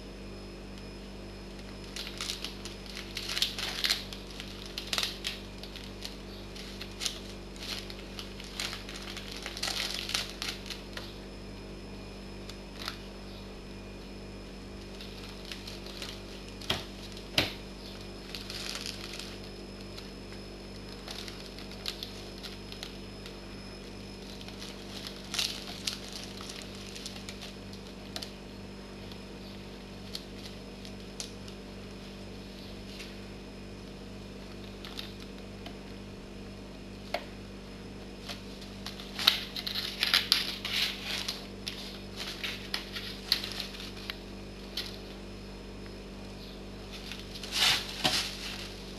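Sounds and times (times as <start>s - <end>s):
plastic bag crinkling: 1.5s - 11.3s, 12.5s - 13.1s, 14.8s - 28.4s, 29.0s - 31.6s, 34.4s - 35.4s, 38.1s - 45.2s, 46.8s - 48.9s.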